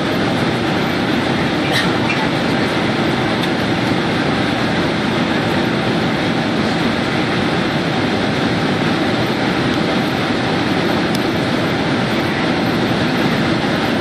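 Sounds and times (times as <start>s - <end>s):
airplane cabin roar: 0.0s - 14.0s.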